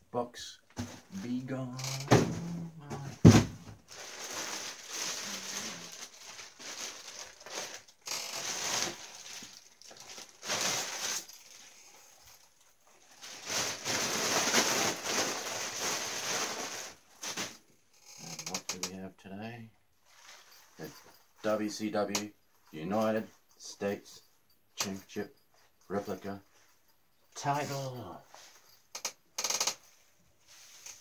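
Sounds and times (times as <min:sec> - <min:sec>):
plastic and bubble wrap crinkling: 0:00.8 - 0:17.7, 0:20.0 - 0:21.7.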